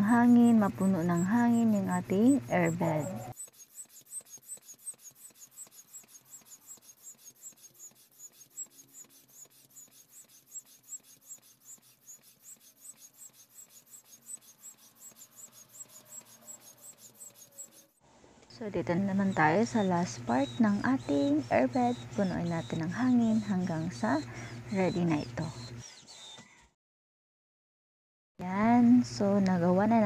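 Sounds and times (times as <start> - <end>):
hand air pump puffing: 3.3 - 18.0, 25.4 - 26.6.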